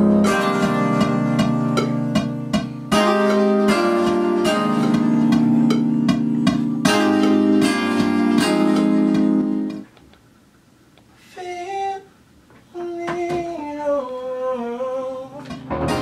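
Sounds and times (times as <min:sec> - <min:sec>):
plucked string chords: 0:00.0 - 0:09.8, 0:15.5 - 0:16.0.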